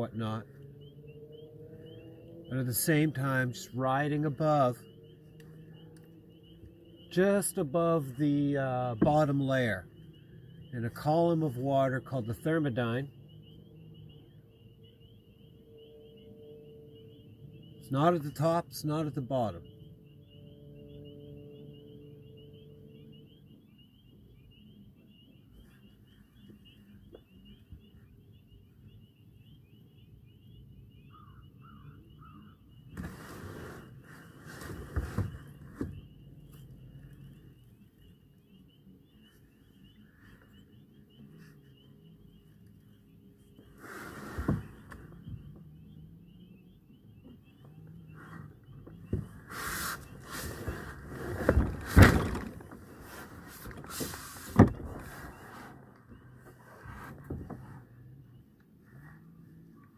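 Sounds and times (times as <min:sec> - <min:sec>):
high bird twittering: 0:00.0 - 0:56.8
short lower bird calls: 0:00.0 - 0:59.9
knocks and scuffs in a canoe: 0:32.9 - 0:36.7, 0:43.8 - 0:45.8, 0:48.2 - 0:57.8.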